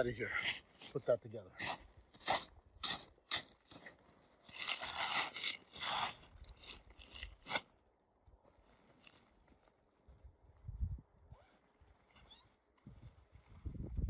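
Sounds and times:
footsteps crunching snow: 0.0s - 10.2s, 11.4s - 14.0s
plastic tarp rustling: 8.4s - 9.8s.

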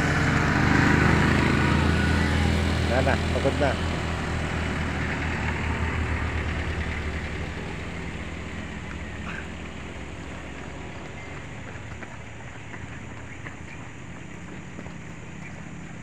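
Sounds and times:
van engine driving past: 0.0s - 16.0s.

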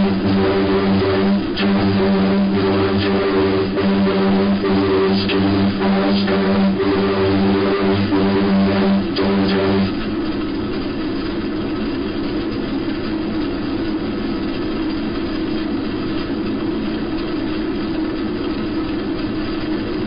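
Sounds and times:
radio static hiss: 0.0s - 10.0s
buzzing tone: 0.0s - 10.1s.

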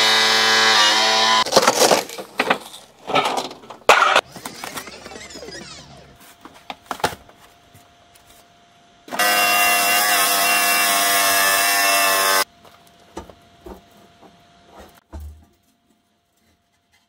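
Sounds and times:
angle grinder cutting steel: 0.0s - 1.5s, 9.1s - 12.5s.

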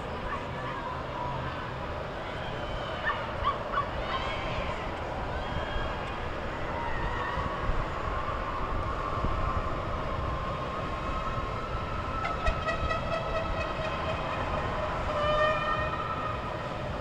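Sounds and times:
richer horn tone: 12.2s - 16.4s
sustained horn tones: 12.2s - 16.7s.

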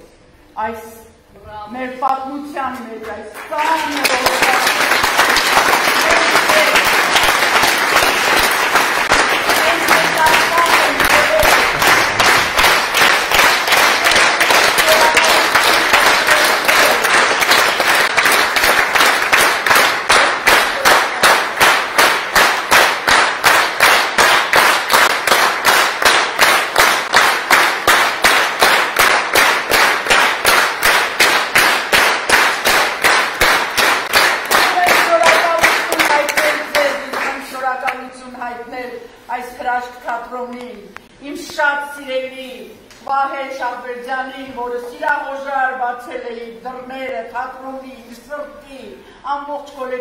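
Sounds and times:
rhythmic clapping in unison: 3.0s - 38.0s
audience applauding: 3.5s - 37.4s.

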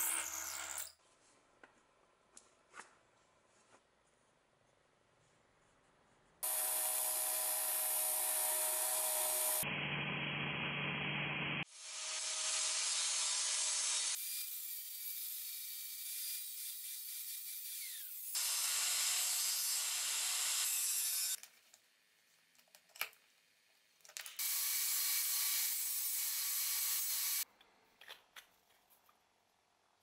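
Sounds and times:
electric grinder grinding steel: 6.4s - 10.0s, 24.4s - 27.4s.

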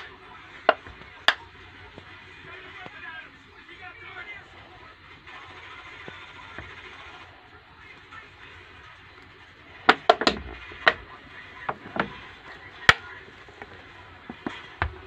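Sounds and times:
plastic bottle crackling: 9.0s - 15.0s.

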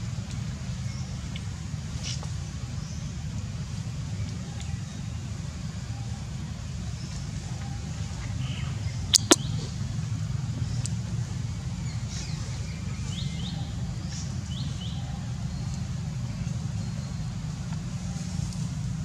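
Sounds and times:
faint bird chirps: 8.4s - 9.6s
sharp clicks: 9.2s - 9.4s.

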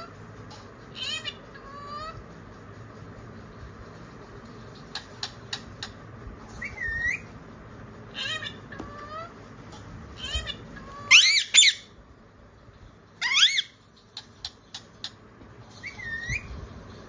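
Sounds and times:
parakeet calls: 0.9s - 2.2s, 4.8s - 6.0s, 6.6s - 7.3s, 8.1s - 9.4s, 10.2s - 12.0s, 13.2s - 16.6s.

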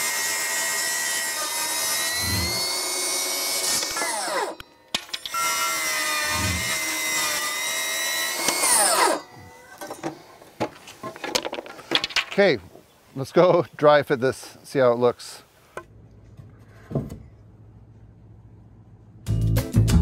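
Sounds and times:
table saw ripping wood: 0.0s - 10.0s.

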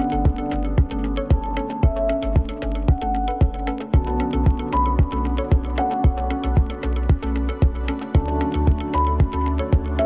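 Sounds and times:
electronic music with steady beat: 0.0s - 10.0s.

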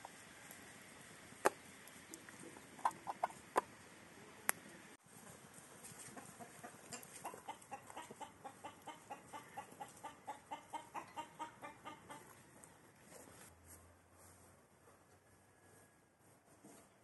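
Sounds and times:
chickens clucking: 1.4s - 3.9s, 5.2s - 12.8s.

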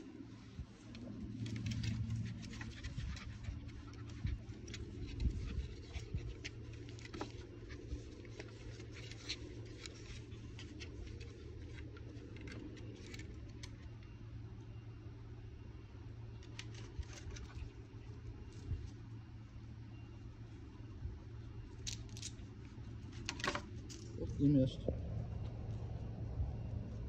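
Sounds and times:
steady low hum: 0.0s - 27.0s.

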